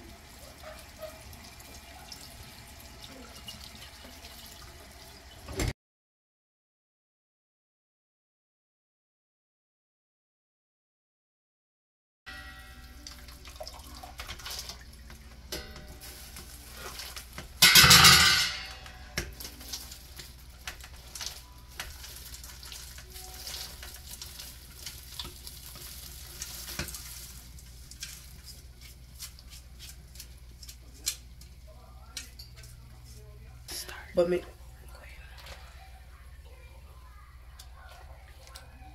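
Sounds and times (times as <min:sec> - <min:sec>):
wet leaves rustling: 0:15.9 - 0:17.5, 0:19.3 - 0:30.8.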